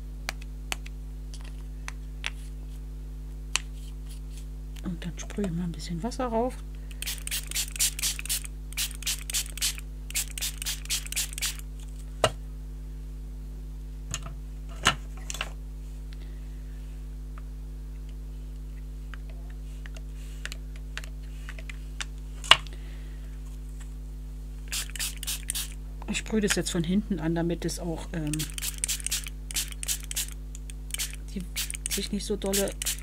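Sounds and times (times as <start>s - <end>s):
steady low hum: 0.0s - 33.0s
spray bottle squirts: 7.0s - 11.6s, 24.7s - 25.8s, 28.3s - 33.0s.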